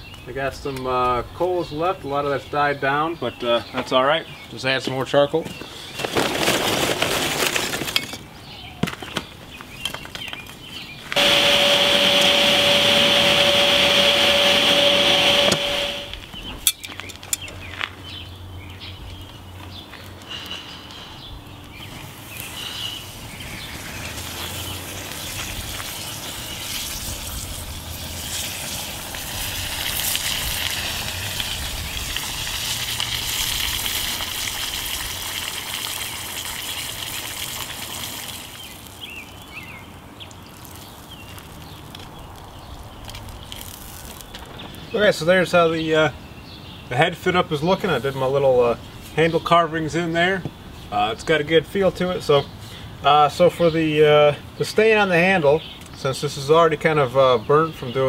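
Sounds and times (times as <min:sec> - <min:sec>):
loud rushing noise with tone: 0:11.2 - 0:16.3
hot steel sizzling in quenchant: 0:22.0 - 0:39.5, 0:43.0 - 0:44.3.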